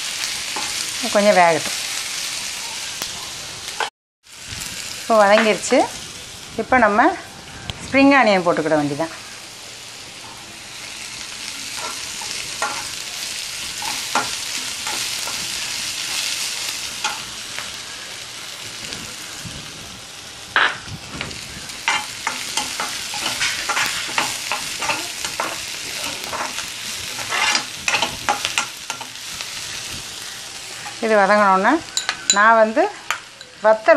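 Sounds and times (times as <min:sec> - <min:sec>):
vegetables sizzling in oil: 0:00.0 - 0:33.9
spatula scraping a pan: 0:21.8 - 0:31.0.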